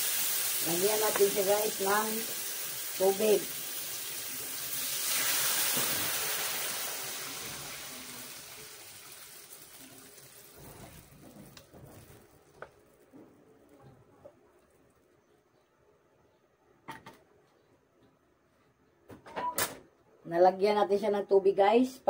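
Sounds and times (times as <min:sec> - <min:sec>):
water hissing in hot oil: 0:00.0 - 0:12.7.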